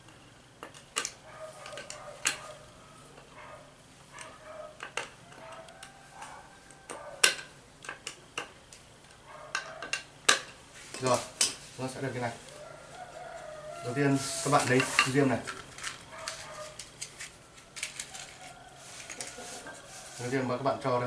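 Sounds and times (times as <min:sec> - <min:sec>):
pliers clicking on metal: 0:00.6 - 0:02.5.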